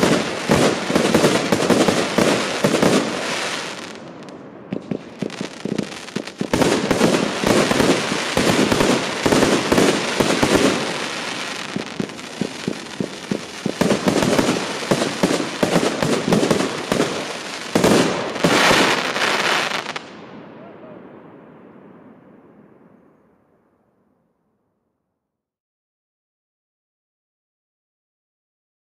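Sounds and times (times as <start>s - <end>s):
fireworks firing and bursting: 0.0s - 21.4s.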